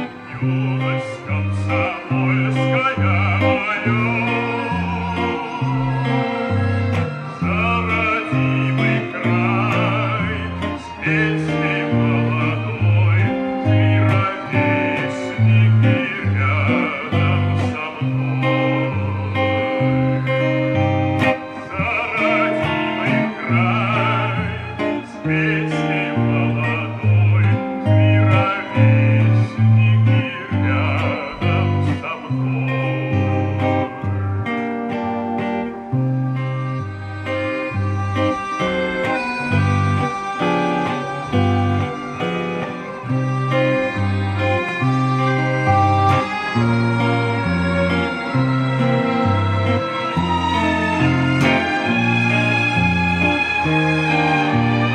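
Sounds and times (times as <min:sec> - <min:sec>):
electric guitar through amplifier: 0:00.0 - 0:54.9
bass line: 0:35.9 - 0:54.9.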